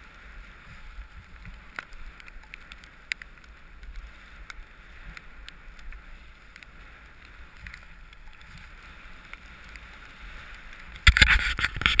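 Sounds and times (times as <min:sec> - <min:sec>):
faint ticks: 0:00.0 - 0:12.0
skis sliding over snow: 0:00.0 - 0:12.0
wind rumble on microphone: 0:00.0 - 0:12.0
rough bursts of noise: 0:10.9 - 0:12.0.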